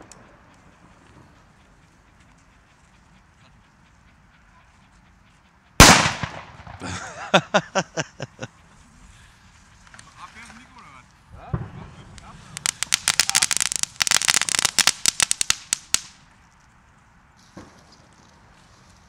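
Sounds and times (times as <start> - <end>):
firecracker bang: 5.8 - 7.0, 11.4 - 16.1.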